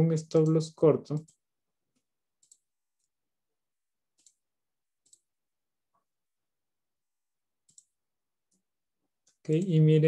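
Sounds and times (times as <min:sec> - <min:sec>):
computer mouse clicks: 0:00.4 - 0:03.2, 0:04.1 - 0:04.4, 0:05.0 - 0:05.3, 0:07.6 - 0:09.7.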